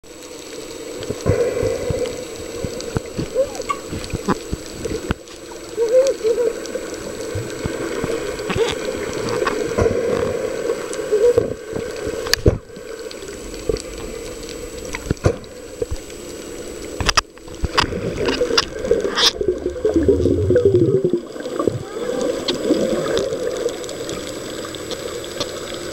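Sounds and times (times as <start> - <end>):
underwater low hum: 0.0 - 25.9.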